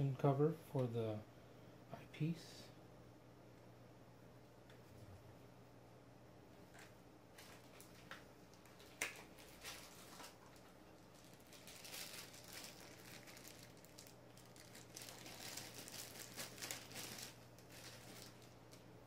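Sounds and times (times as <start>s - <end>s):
steady low hum: 0.0s - 19.0s
plastic packaging crinkling: 7.4s - 18.9s.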